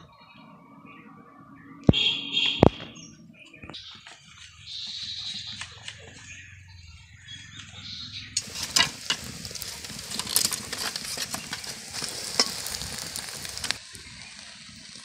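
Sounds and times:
steel spatula scraping pan: 8.4s - 13.8s
omelette sizzling in oil: 8.4s - 15.0s.

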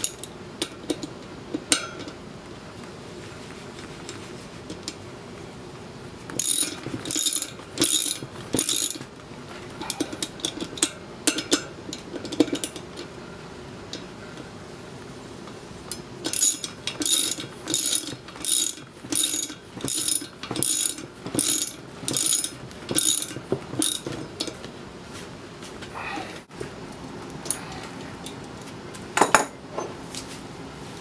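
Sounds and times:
ratchet wrench clicking: 6.4s - 9.0s, 16.2s - 24.1s.

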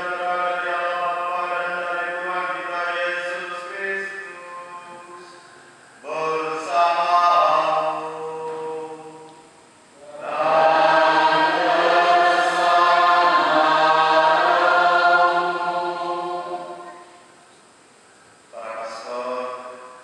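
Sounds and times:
group singing a chant: 0.0s - 3.7s, 10.0s - 17.3s.

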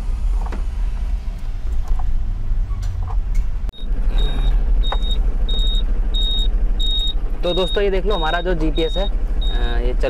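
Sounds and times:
high-pitched electronic beeping: 3.7s - 9.8s
truck diesel engine idling: 3.7s - 10.0s.

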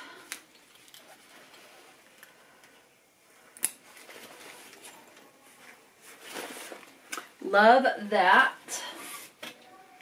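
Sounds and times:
fabric bag handling noise: 3.8s - 7.4s.

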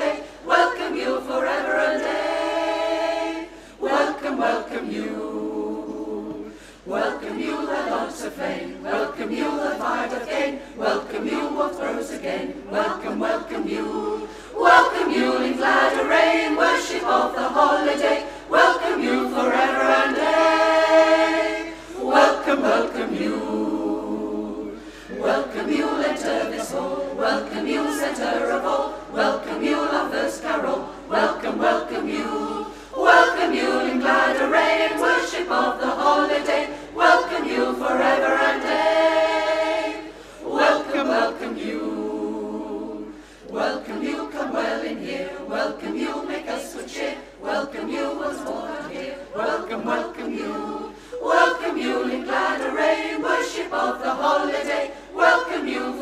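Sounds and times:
women's choir singing a cappella: 0.0s - 56.0s.

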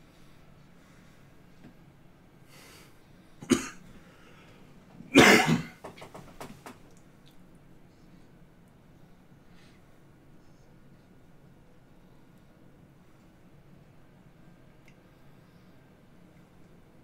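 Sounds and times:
man coughing: 3.4s - 3.8s, 5.1s - 5.8s.

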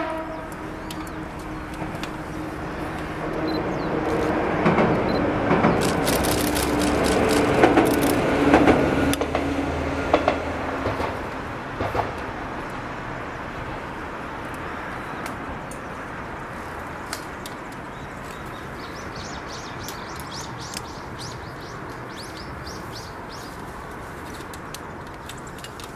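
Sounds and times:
electric train passing: 0.0s - 16.8s
sharp clicks: 5.7s - 8.2s.

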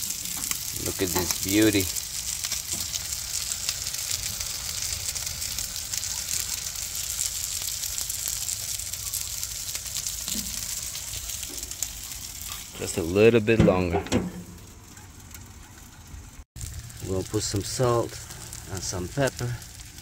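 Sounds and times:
fish sizzling on a grill: 0.0s - 20.0s
low steady rumble: 13.5s - 20.0s.

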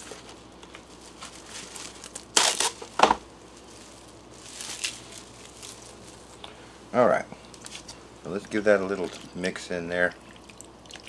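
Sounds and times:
cling film crinkling: 0.0s - 6.6s
cling film tearing rasps: 1.9s - 3.2s.

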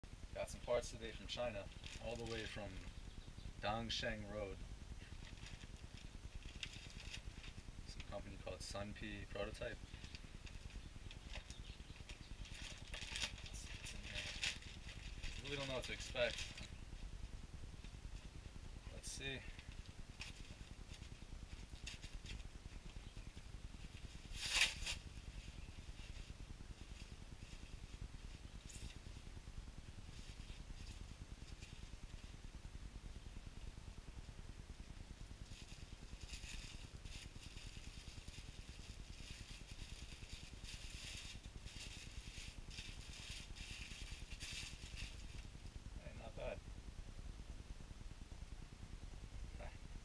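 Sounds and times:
steady low hum: 0.0s - 50.0s
paper and foam crinkling: 0.4s - 2.8s, 3.9s - 16.8s, 19.0s - 29.1s, 35.4s - 45.8s
foam packing sheet rustling: 12.5s - 16.7s.

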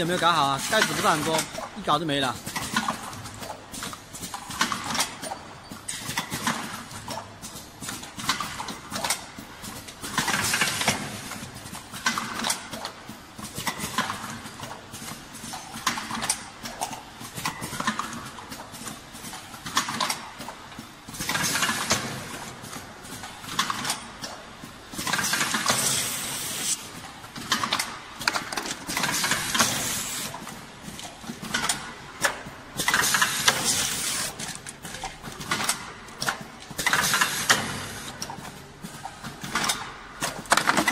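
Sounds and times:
machine clacking: 0.0s - 14.8s.

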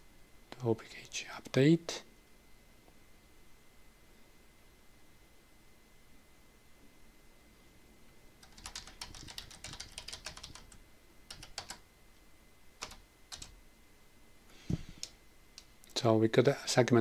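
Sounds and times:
typing on computer keyboard: 8.4s - 11.8s, 12.8s - 13.6s.

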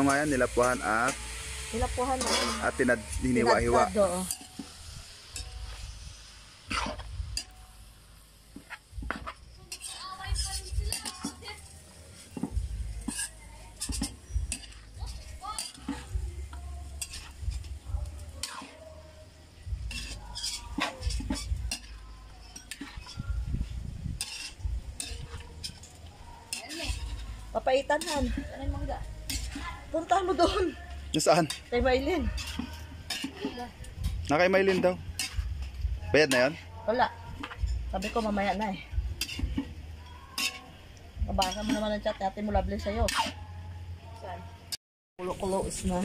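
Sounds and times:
metal ladle scraping pan: 0.0s - 7.6s, 8.6s - 16.2s, 16.8s - 17.5s, 18.2s - 19.0s, 19.8s - 23.3s, 24.2s - 28.6s, 29.2s - 35.4s, 37.3s - 42.0s, 43.1s - 43.4s
faint sizzle: 0.0s - 46.0s
low rumbles: 23.0s - 26.2s.

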